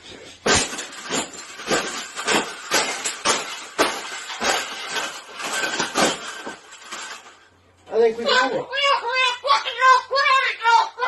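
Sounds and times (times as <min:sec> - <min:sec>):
stamping crushing metal wire: 0:00.4 - 0:07.4.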